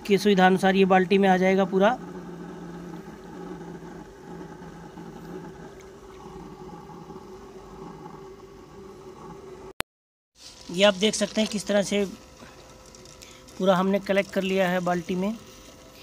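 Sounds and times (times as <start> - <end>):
low motor hum: 0.0 - 9.8
liquid pouring into a bucket: 10.4 - 16.0.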